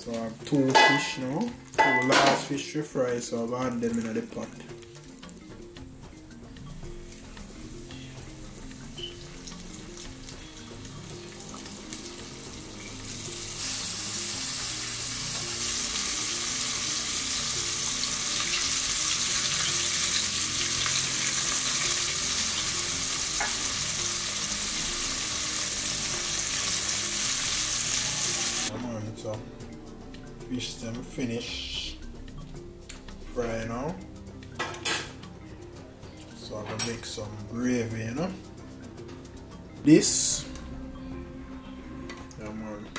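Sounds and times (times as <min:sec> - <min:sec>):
fish sizzling in hot oil: 0:07.0 - 0:28.7.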